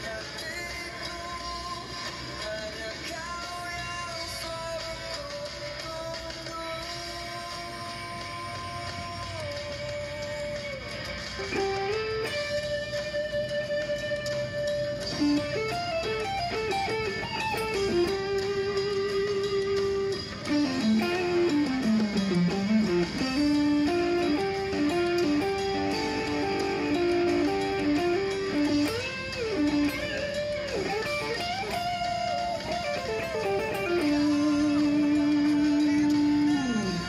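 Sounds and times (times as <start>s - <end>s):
electric guitar lead melody: 8.7s - 37.0s.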